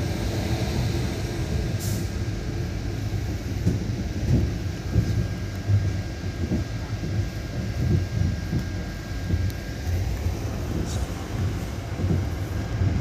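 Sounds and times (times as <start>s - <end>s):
train wheels rumbling on rail: 0.0s - 13.0s
heavy knocks of train: 3.0s - 13.0s.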